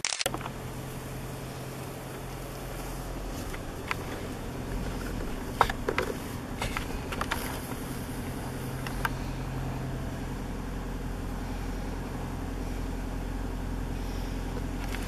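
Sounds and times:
car engine drone inside cabin: 0.3 - 15.0
sharp clicks and knocks: 3.4 - 7.8.

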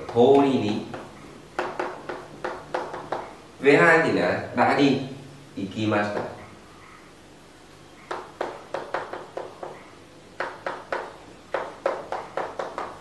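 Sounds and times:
chalk tapping on a chalkboard: 0.0 - 3.4, 8.0 - 13.0.

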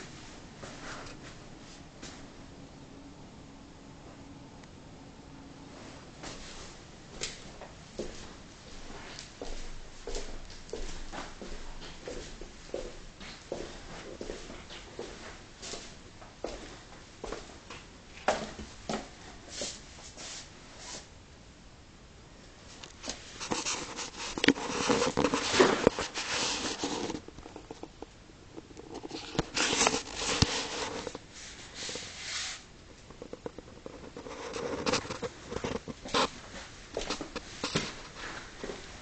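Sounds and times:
rustling and scraping: 22.7 - 39.0.

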